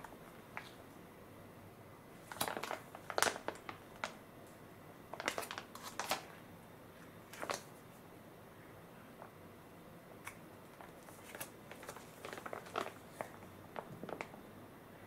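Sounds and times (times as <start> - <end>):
plastic pouch crinkling: 2.2 - 4.2, 5.1 - 6.4, 7.3 - 7.7, 10.8 - 14.4.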